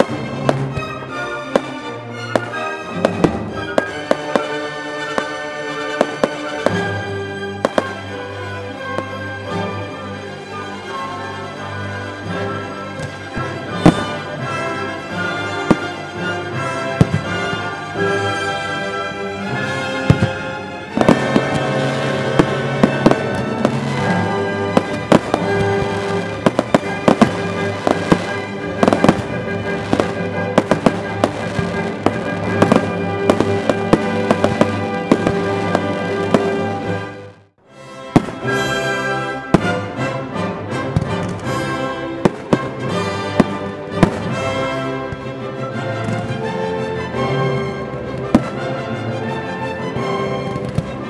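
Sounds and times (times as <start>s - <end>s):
music: 0.0s - 51.0s
firework shells bursting: 20.0s - 36.8s.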